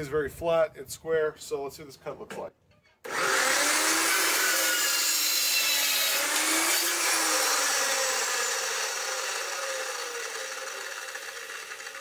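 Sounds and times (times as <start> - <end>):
chop saw grinding through metal: 3.0 - 12.0.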